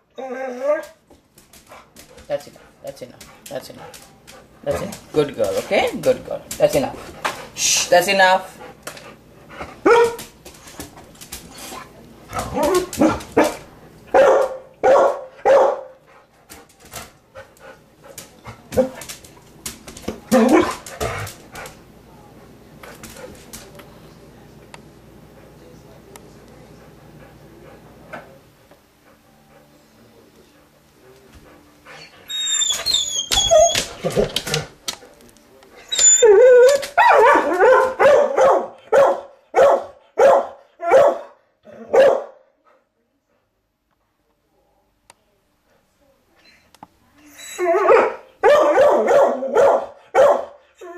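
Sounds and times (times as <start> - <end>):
dog barking: 9.8 - 10.2, 12.6 - 16.0, 37.0 - 42.4, 47.8 - 50.6
dog whining: 32.0 - 34.3, 35.8 - 37.2, 47.3 - 47.8.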